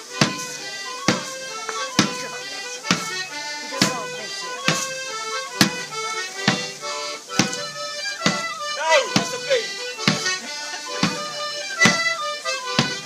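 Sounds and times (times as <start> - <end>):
reedy folk dance tune: 0.0 - 13.0
sharp knock on the beat: 0.2 - 0.5, 2.0 - 2.2, 2.9 - 3.1, 5.6 - 5.9, 6.5 - 6.7, 7.4 - 10.4, 11.0 - 13.0.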